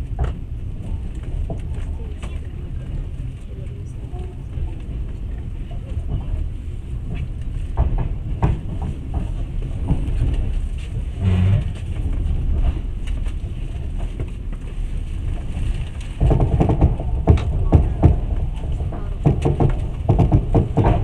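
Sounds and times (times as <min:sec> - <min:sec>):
train carriage rumbling: 0:00.0 - 0:21.0
low hum: 0:10.7 - 0:13.8
knocks and rattles: 0:15.4 - 0:21.0.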